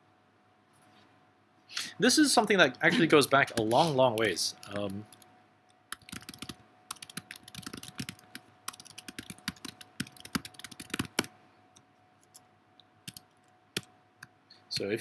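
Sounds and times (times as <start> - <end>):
faint steady hum: 0.0 - 15.0
computer keyboard typing: 5.9 - 13.9.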